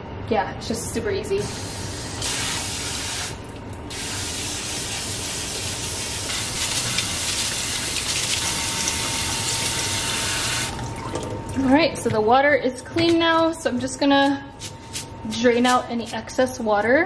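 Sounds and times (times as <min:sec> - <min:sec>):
faucet water splashing into sink: 0:03.4 - 0:11.7.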